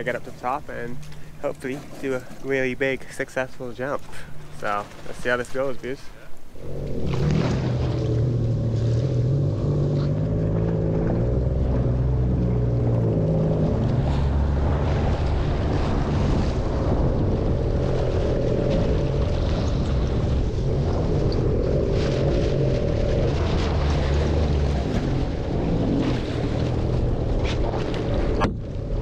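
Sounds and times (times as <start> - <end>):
jet ski engine running: 0.0 - 29.0
wind on microphone: 6.4 - 29.0.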